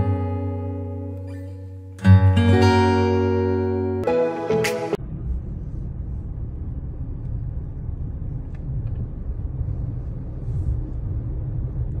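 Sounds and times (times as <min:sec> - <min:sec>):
car cabin low rumble: 0:05.0 - 0:12.0.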